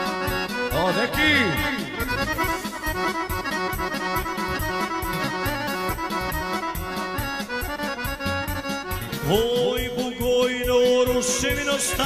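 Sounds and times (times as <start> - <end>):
accordion folk music with beat: 0.0 - 12.0.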